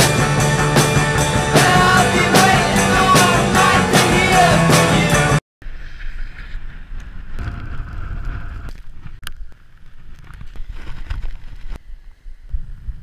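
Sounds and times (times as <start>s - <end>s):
wind rushing over microphone: 5.7s - 9.2s.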